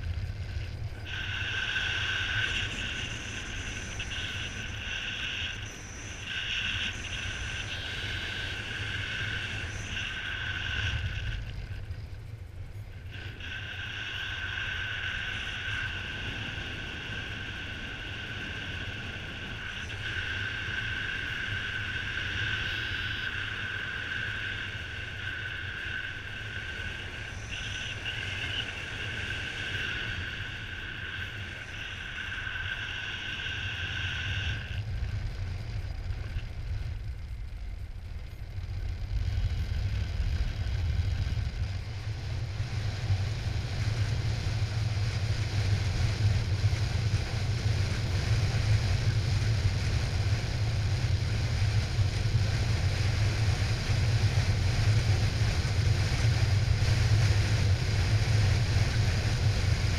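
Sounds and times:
steady high-pitched tone: 0.0 - 59.9
wind buffeting microphone: 0.0 - 59.9.

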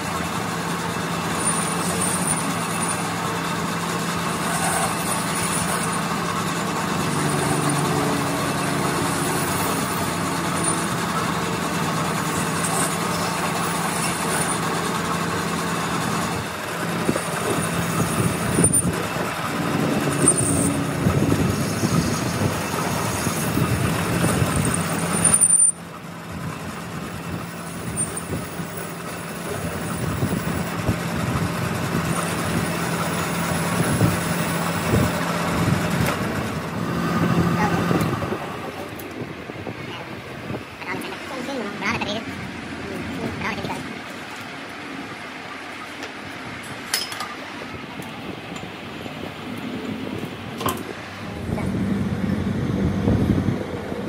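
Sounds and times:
metal lathe humming: 0.0 - 39.2
tool cutting steel: 1.3 - 3.2, 4.4 - 6.2, 6.9 - 15.0, 16.8 - 25.8.

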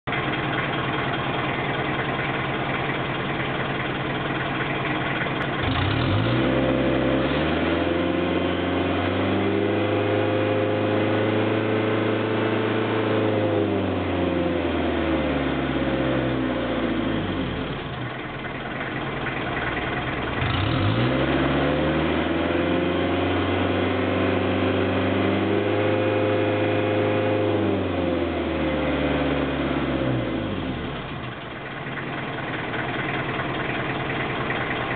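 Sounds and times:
diesel engine idling and revving: 0.0 - 34.9.

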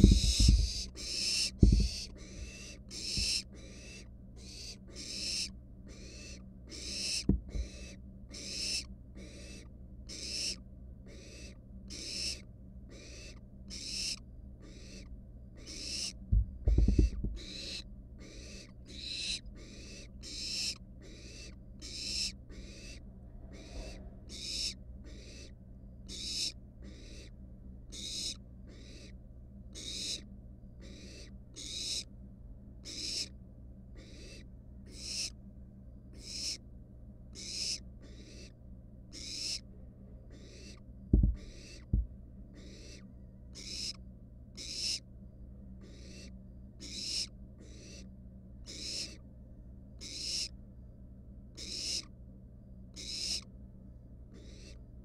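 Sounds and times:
thumps: 0.0 - 0.7, 1.6 - 2.0, 7.3 - 7.6, 16.3 - 17.4, 41.1 - 42.1
owl chicks hissing calls: 0.0 - 32.1, 32.8 - 35.4, 36.1 - 36.6, 37.3 - 39.7, 40.3 - 45.1, 45.8 - 49.2, 50.0 - 50.6, 51.5 - 52.1, 52.9 - 53.5, 54.3 - 54.8
low electrical hum: 0.0 - 55.0.

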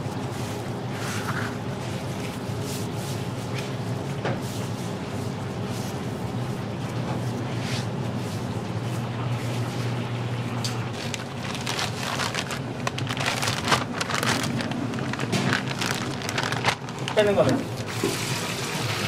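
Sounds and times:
low kitchen hum: 0.0 - 19.0
plastic bag crinkling: 10.8 - 18.1.

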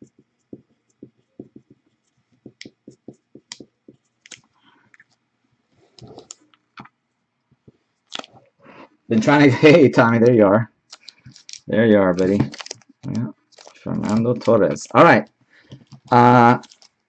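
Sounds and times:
marker scratching on plastic: 0.0 - 4.5, 10.9 - 17.0
plastic sleeves rustling: 5.8 - 6.9, 9.2 - 17.0.

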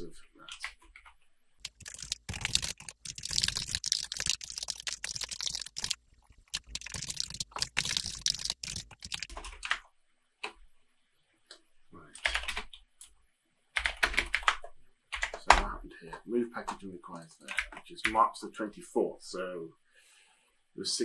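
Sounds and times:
typing on computer keyboard: 0.5 - 9.8, 12.2 - 12.8, 13.8 - 15.6, 17.4 - 18.2.

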